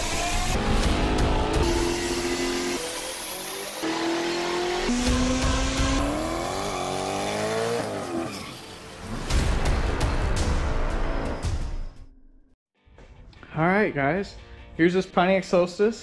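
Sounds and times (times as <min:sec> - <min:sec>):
car engine revving: 0:00.0 - 0:09.3
tyres spinning and squealing: 0:06.2 - 0:09.0.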